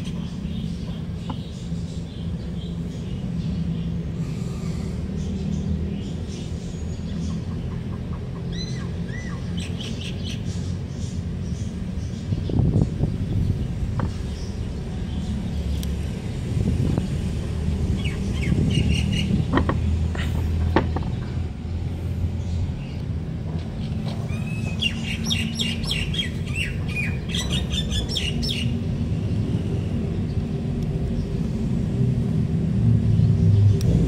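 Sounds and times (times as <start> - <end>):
small birds chirping: 0.0 - 31.7
steady low rumble: 10.5 - 34.0.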